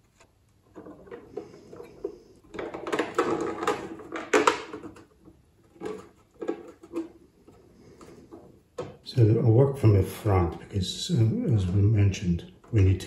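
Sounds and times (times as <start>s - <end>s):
plastic parts rubbing and clicking: 0.0s - 9.1s.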